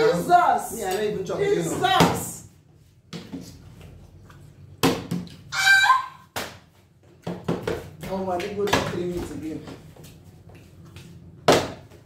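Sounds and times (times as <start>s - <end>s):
short high-pitched cry: 5.5s - 6.2s.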